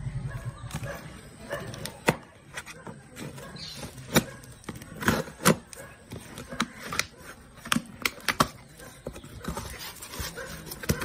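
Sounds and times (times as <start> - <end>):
cardboard flaps clicking and scraping: 0.7 - 11.0.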